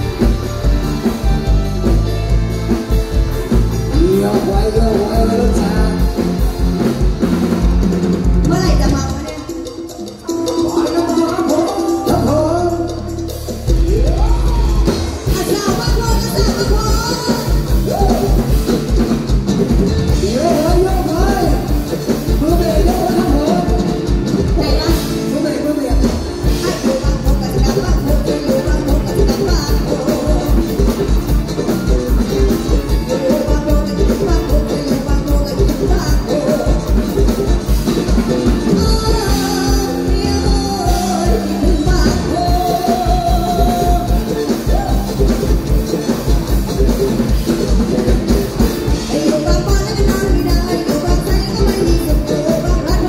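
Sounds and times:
heavy bass drum beat: 0:00.0 - 0:53.0
live band music: 0:00.0 - 0:53.0
person singing: 0:03.7 - 0:07.0, 0:08.4 - 0:19.1, 0:20.1 - 0:46.4, 0:48.8 - 0:53.0
woman singing into a microphone: 0:38.6 - 0:45.1, 0:49.0 - 0:53.0.

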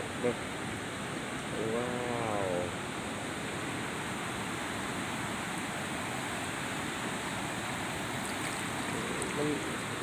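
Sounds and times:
low voice: 0:09.2 - 0:09.7.

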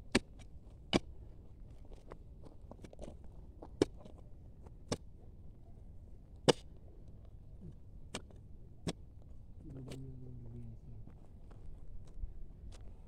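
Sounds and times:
steel bar striking stony ground: 0:06.5 - 0:06.7.

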